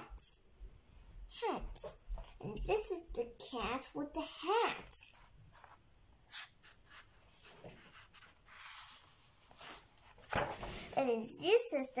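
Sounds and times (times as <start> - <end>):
paper page rustling and turning: 5.1 - 11.0.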